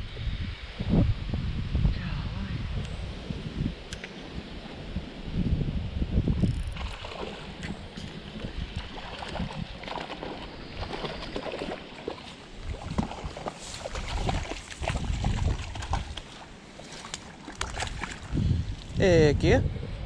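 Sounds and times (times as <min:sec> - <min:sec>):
wind rumble on microphone: 0:00.0 - 0:20.0.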